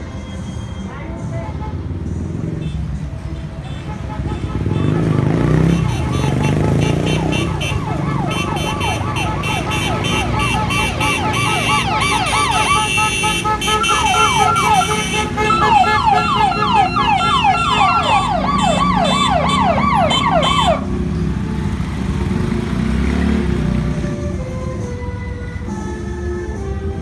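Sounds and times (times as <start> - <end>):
electronic siren yelping: 6.9 - 13.1, 13.8 - 20.9.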